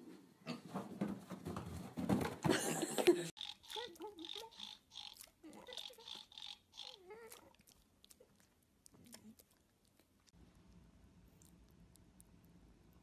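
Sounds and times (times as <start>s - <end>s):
piglet grunting: 3.4s - 10.2s.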